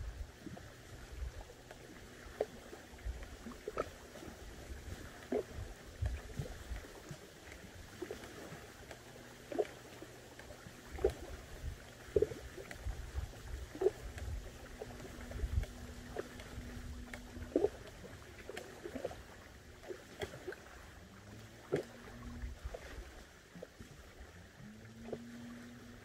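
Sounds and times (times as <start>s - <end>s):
faint steady hum: 0.0s - 26.0s
paddle splashing in water: 0.0s - 26.0s
low rumble: 10.6s - 19.8s, 20.6s - 23.2s.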